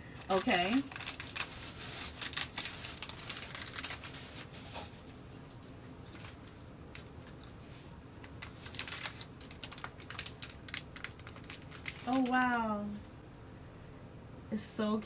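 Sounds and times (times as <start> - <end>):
plastic wrapper crinkling: 0.0 - 5.0, 8.2 - 13.0.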